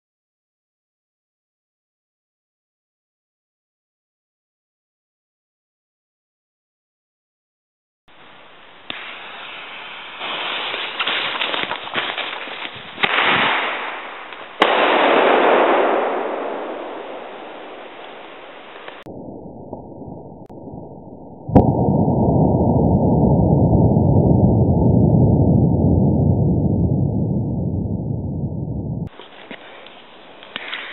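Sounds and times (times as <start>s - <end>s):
firework fuse crackling: 8.7s - 19.1s, 29.1s - 30.9s
loud firework bang: 13.0s - 19.1s
sharp firework bang: 13.0s - 19.1s
steady rushing noise: 21.5s - 30.5s.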